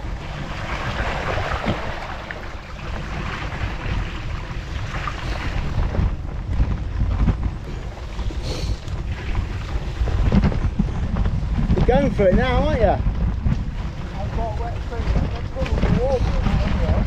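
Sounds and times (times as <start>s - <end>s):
bicycle tyres splashing through mud: 0.0s - 10.4s
wind on microphone: 0.0s - 17.0s.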